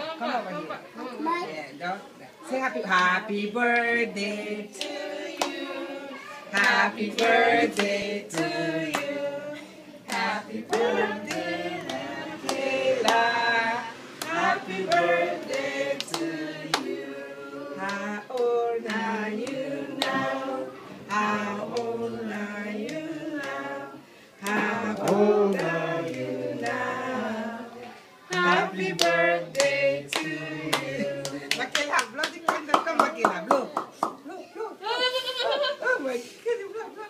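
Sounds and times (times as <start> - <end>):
people singing a celebration song: 2.4 - 32.7
hands clapping along: 6.6 - 9.1, 28.3 - 34.2.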